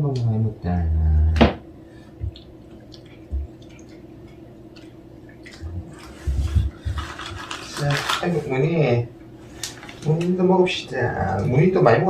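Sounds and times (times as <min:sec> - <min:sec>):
cats licking and smacking: 0:02.2 - 0:07.7.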